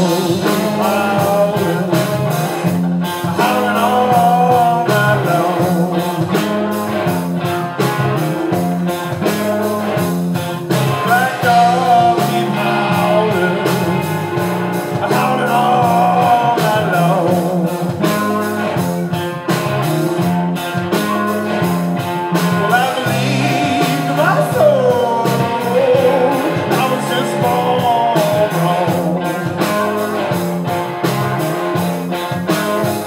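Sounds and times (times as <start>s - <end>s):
bending lead guitar line: 0.0s - 33.0s
blues-rock band playing: 0.0s - 33.0s.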